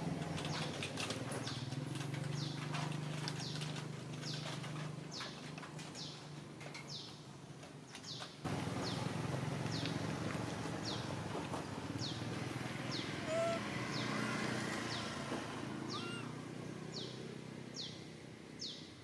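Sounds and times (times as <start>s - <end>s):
bird chirping: 12.9s - 15.2s, 15.8s - 18.0s.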